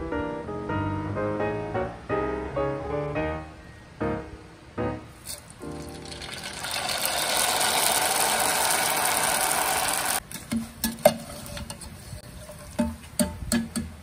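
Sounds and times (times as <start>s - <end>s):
noodles sizzling in hot oil: 5.4s - 10.2s.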